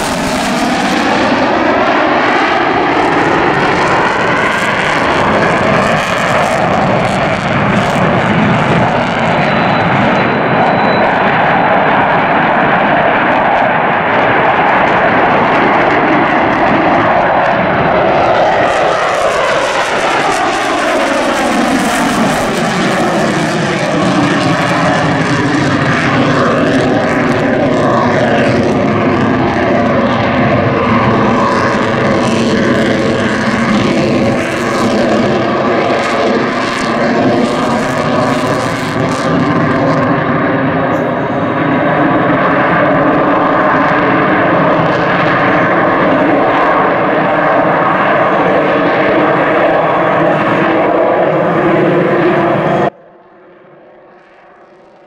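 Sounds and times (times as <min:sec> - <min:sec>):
jet engines roaring in flight: 0:00.0 - 0:55.0.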